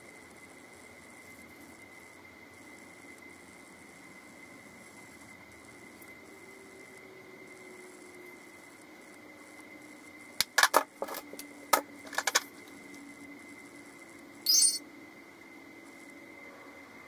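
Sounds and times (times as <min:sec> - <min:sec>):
small containers clicking: 0:10.4 - 0:12.5
short high-pitched squeak: 0:14.5 - 0:14.8.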